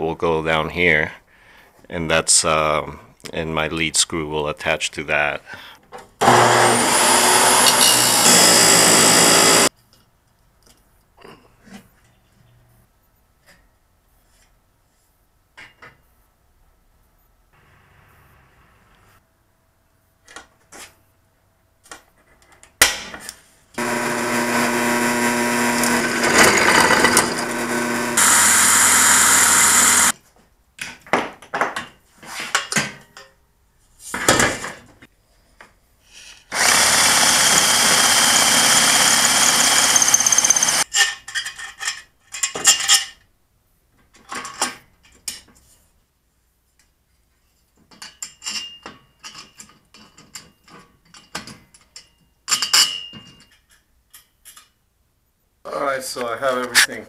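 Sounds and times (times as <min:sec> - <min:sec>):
electric drill boring into steel: 0:06.2 - 0:09.7, 0:23.8 - 0:30.1, 0:36.5 - 0:40.9.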